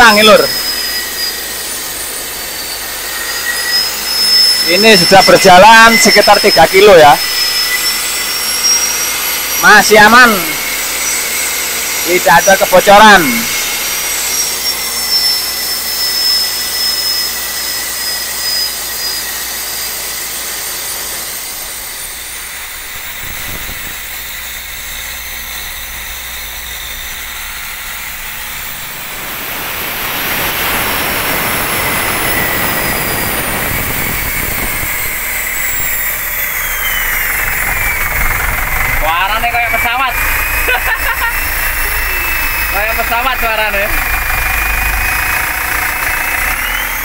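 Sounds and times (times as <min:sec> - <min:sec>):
turbo whistle: 0:00.0 - 0:47.0
diesel engine hum: 0:21.4 - 0:47.0.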